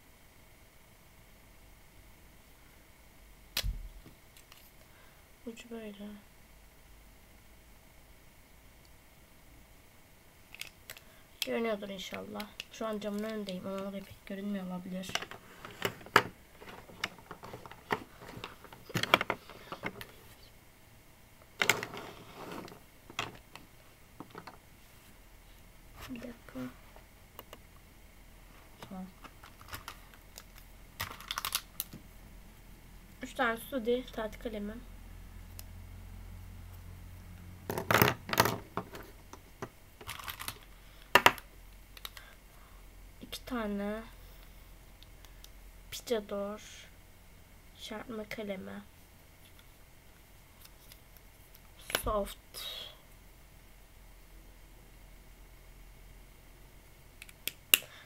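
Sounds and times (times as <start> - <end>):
marker pens clicking and clattering: 10.6 - 14.1, 29.2 - 32.0.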